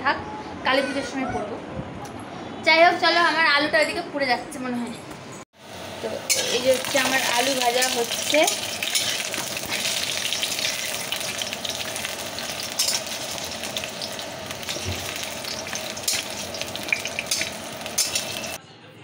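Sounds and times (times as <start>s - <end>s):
potatoes sizzling in oil: 5.6s - 18.6s
steel spatula scraping pan: 7.8s - 11.3s.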